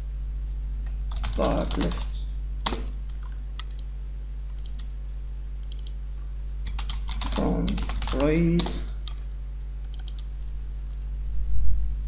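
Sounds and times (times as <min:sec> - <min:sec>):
low electrical hum: 0:00.0 - 0:12.0
keyboard and mouse clicking: 0:01.1 - 0:02.0, 0:02.6 - 0:03.9, 0:04.5 - 0:04.9, 0:05.6 - 0:06.0, 0:06.7 - 0:09.2, 0:09.8 - 0:10.3.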